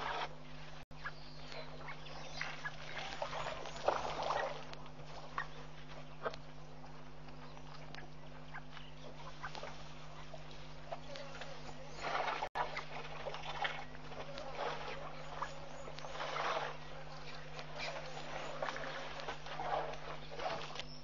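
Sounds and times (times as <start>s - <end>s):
low electrical hum: 0.0s - 21.0s
elephants splashing in water: 1.8s - 6.3s, 9.2s - 21.0s.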